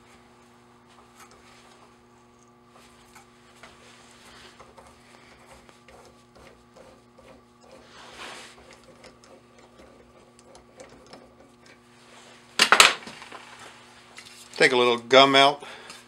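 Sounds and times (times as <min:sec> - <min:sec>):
steady low hum: 0:00.0 - 0:16.0
tap wrench clicking and creaking: 0:08.7 - 0:11.8.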